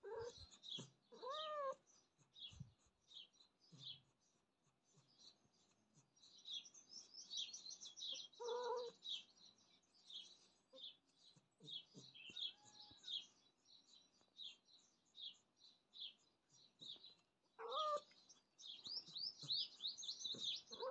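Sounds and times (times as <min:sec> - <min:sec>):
cat meowing: 0:00.0 - 0:00.4, 0:01.1 - 0:01.8, 0:08.4 - 0:09.0, 0:17.6 - 0:18.1
small birds chirping: 0:00.0 - 0:20.9.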